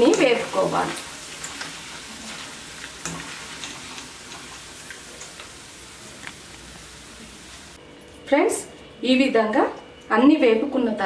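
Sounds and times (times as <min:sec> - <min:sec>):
food sizzling in hot oil: 0:00.0 - 0:07.8.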